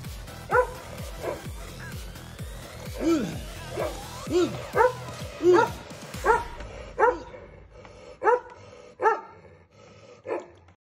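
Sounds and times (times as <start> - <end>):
dog barking deeply: 0.5 - 1.9, 3.0 - 7.6, 8.2 - 9.6.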